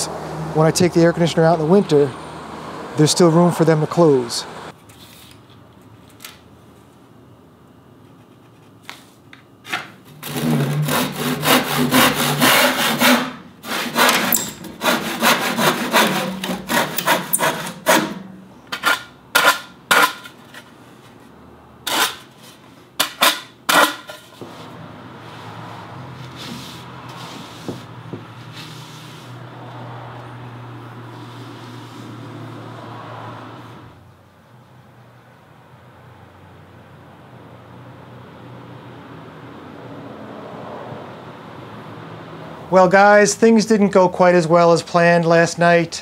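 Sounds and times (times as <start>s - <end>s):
rasp scraping wood: 10.0s - 20.7s
saw cutting wood: 10.0s - 20.7s, 21.8s - 22.4s, 23.0s - 24.8s.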